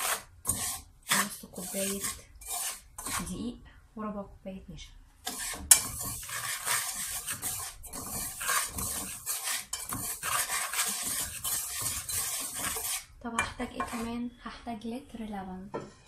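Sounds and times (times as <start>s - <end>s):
whisk scraping and clinking in pot: 0.0s - 3.4s, 5.3s - 13.2s, 13.8s - 14.1s.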